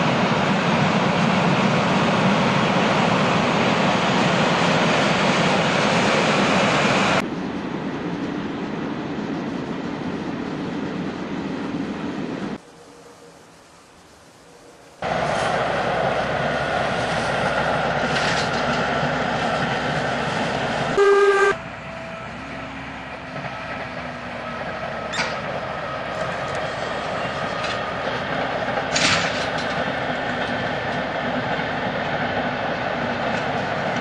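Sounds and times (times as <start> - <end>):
passing train rumble: 0.0 - 34.0
railcar running past: 0.0 - 34.0
train horn blast: 21.0 - 22.6.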